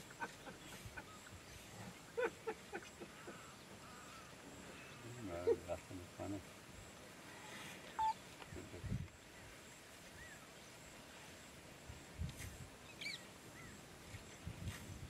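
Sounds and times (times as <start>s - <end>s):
faint steady hiss: 0.0s - 15.0s
bird chirps: 8.0s - 8.2s.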